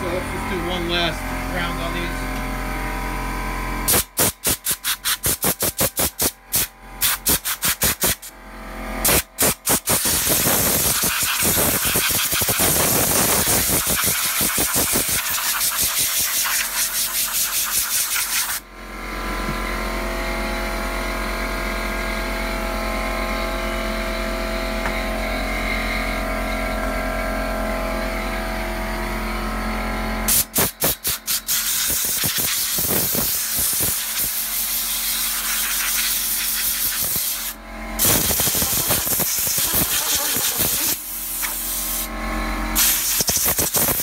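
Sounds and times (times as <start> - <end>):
steady machine hum: 0.0 - 4.4, 8.1 - 18.0, 18.6 - 42.8
compressed air blasts: 3.9 - 8.3, 9.0 - 18.6, 30.3 - 42.1, 42.8 - 44.0.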